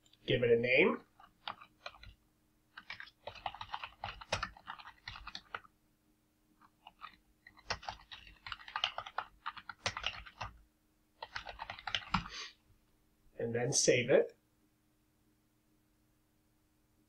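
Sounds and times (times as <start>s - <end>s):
typing on computer keyboard: 1.1s - 5.7s, 6.6s - 10.6s, 11.2s - 12.3s.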